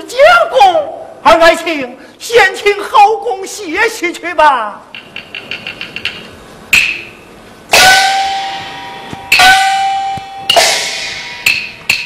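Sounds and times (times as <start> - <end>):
gong ringing: 7.7 - 11.6
cymbal and gong crashes: 7.7 - 11.7.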